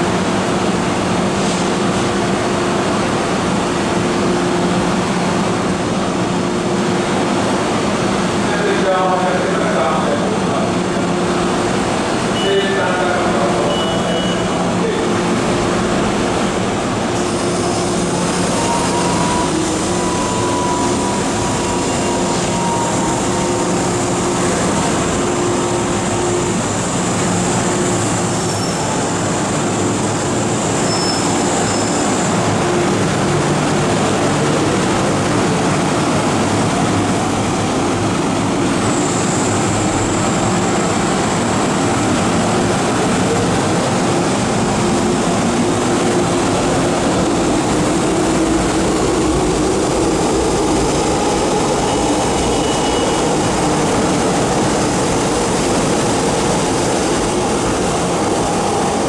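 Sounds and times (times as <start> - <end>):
train wheels rumbling: 14.6 - 59.0.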